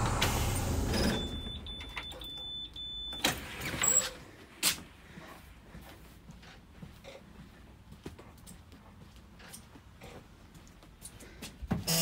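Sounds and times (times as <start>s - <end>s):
footsteps on bus floor: 4.2s - 11.9s.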